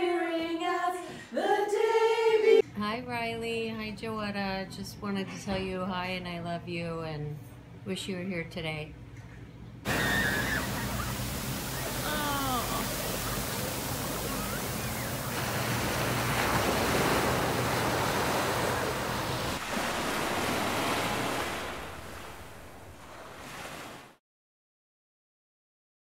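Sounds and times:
ocean surf washing on beach: 0:09.9 - 0:24.2.

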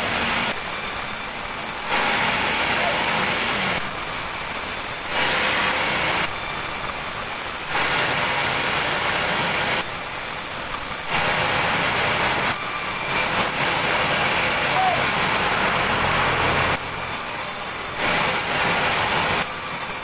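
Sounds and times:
sawmill saw cutting log: 0:00.0 - 0:20.0.

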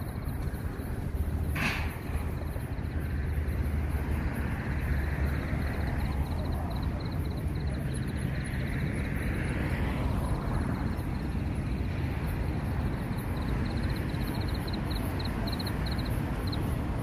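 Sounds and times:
low rumble of car traffic: 0:00.0 - 0:17.0
rapid high-pitched ticking: 0:02.3 - 0:09.3, 0:10.4 - 0:17.0.

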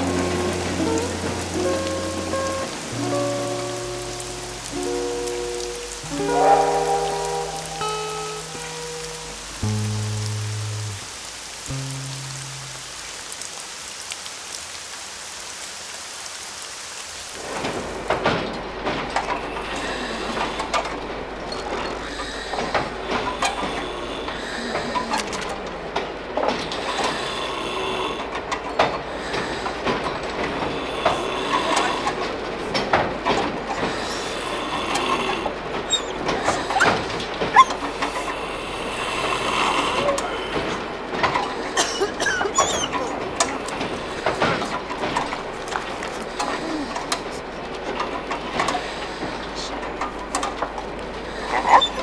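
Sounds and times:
rain hissing: 0:00.0 - 0:52.0
train wheels rattling on rails: 0:17.4 - 0:52.0
wheel squeals: 0:35.7 - 0:38.5, 0:39.2 - 0:48.8, 0:51.5 - 0:52.0.

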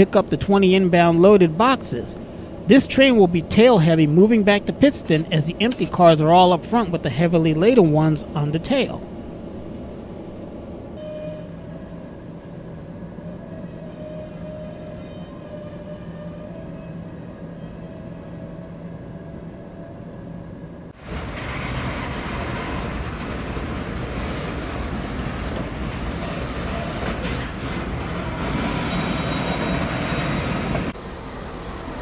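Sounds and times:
locomotive engine running: 0:00.0 - 0:11.0, 0:20.9 - 0:32.0
freight cars rolling on rails: 0:00.0 - 0:18.4, 0:21.0 - 0:32.0.

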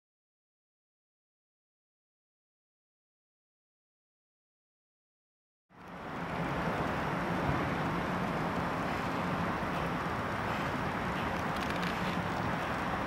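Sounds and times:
harbour ambience: 0:05.7 - 0:13.0.

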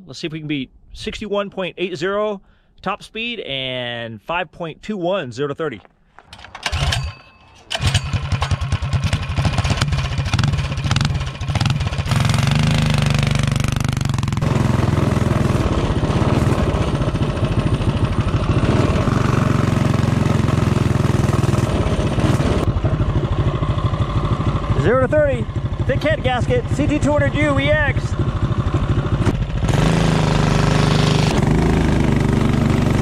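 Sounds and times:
single-cylinder engine running: 0:07.7 - 0:33.0.

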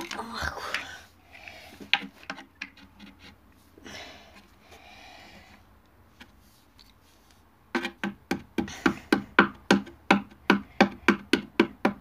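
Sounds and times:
rapid knocking on chipboard: 0:07.7 - 0:12.0.

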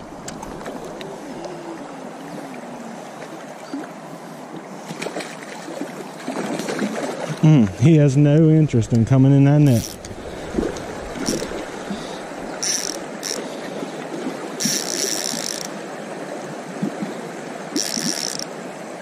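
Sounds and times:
creek water rushing: 0:00.0 - 0:19.0
fishing reel drag buzzing: 0:09.7 - 0:10.2, 0:11.2 - 0:13.6, 0:14.6 - 0:15.8, 0:17.7 - 0:18.5
fish splashing: 0:09.7 - 0:15.8, 0:17.7 - 0:18.5.

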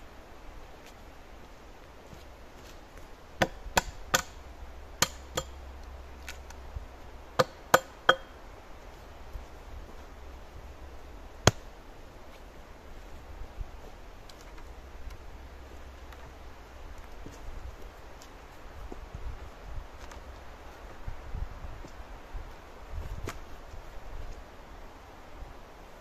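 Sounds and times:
hand tool striking wood: 0:03.4 - 0:04.4, 0:05.0 - 0:05.6, 0:07.4 - 0:08.3.

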